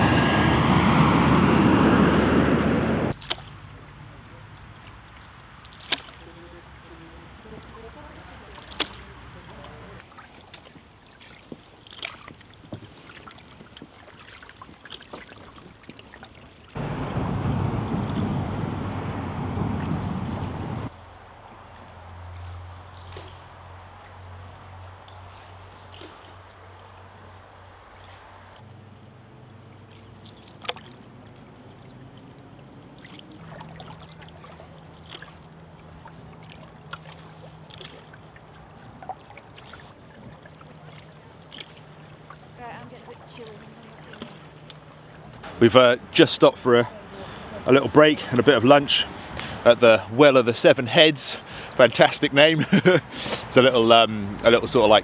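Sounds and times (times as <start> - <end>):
wind on microphone: 0.0 - 3.2, 16.8 - 20.9
paddle stroke splashes: 2.6 - 28.8, 29.4 - 52.5
water dripping off paddles: 3.1 - 28.7, 29.7 - 55.0.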